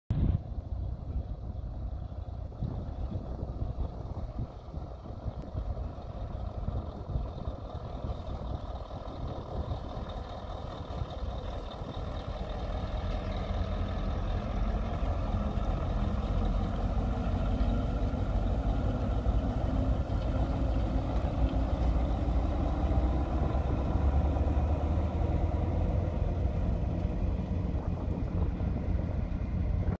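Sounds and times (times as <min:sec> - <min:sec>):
truck diesel engine driving past: 0:00.1 - 0:30.0.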